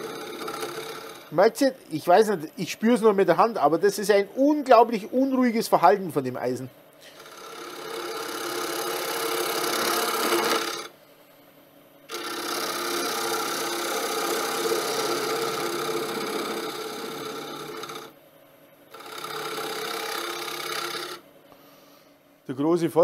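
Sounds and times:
lathe tool scraping wood: 0:00.0 - 0:01.4, 0:07.1 - 0:10.9, 0:12.1 - 0:18.1, 0:18.9 - 0:21.2.

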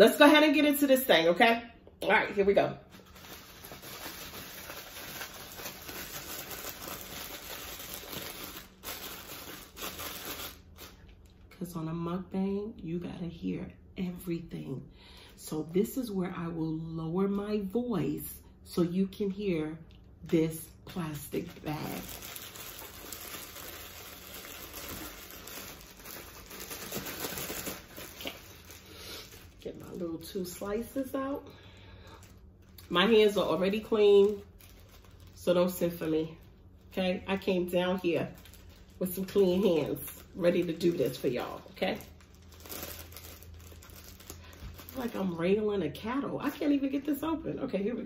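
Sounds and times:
plastic bag crinkling: 0:02.3 - 0:11.5, 0:20.2 - 0:47.0.

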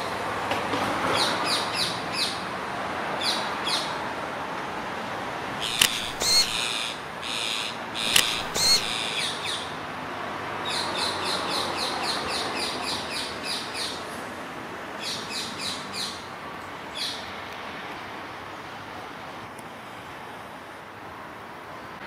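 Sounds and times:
steady background noise: 0:00.0 - 0:22.0
parakeets screeching: 0:05.6 - 0:09.7.

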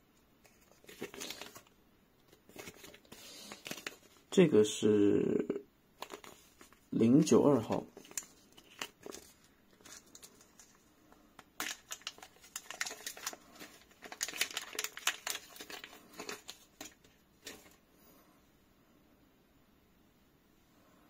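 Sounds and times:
plastic bag crinkling: 0:00.4 - 0:04.4, 0:06.0 - 0:17.8.

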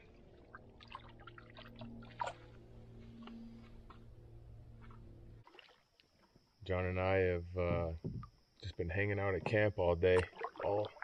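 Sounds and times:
shallow river water splashing: 0:00.0 - 0:02.7, 0:04.8 - 0:06.3, 0:10.1 - 0:11.0
low steady hum: 0:00.0 - 0:11.0.

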